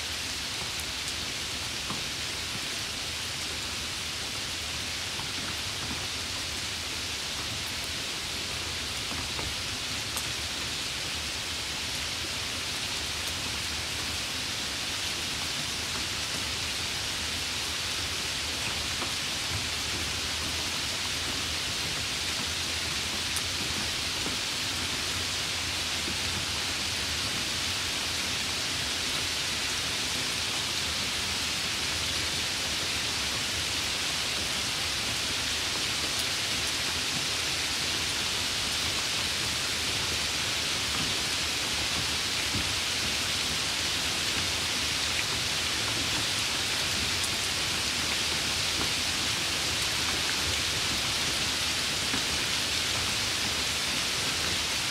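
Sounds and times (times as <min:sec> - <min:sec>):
steady rain hiss: 0:00.0 - 0:54.9.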